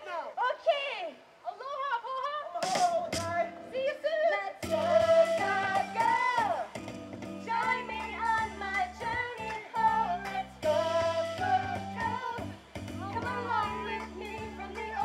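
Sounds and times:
performers singing together: 4.6 - 6.8, 7.4 - 15.0
instrumental accompaniment with bass: 4.6 - 15.0.

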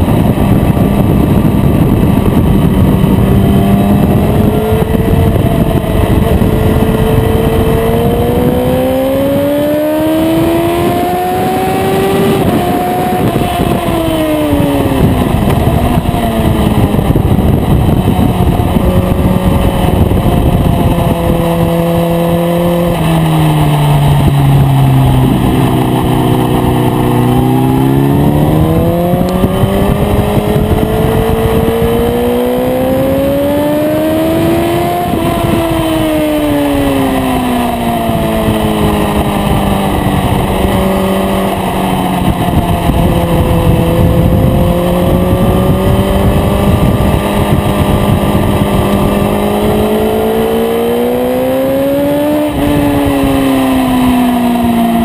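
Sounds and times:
motorcycle engine revving: 0.0 - 55.0
wind rush: 0.0 - 55.0.

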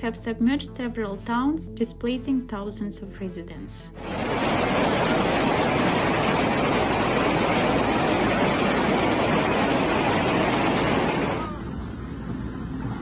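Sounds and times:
rushing floodwater torrent: 4.0 - 11.5.

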